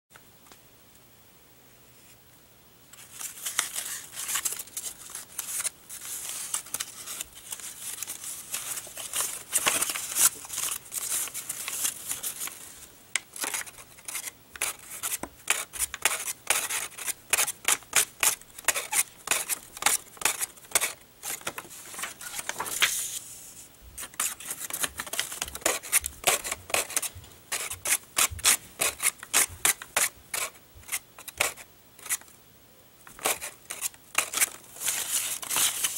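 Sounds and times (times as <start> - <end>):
paper crinkling and rustling: 3.0 - 23.4, 24.0 - 32.3, 33.1 - 35.9.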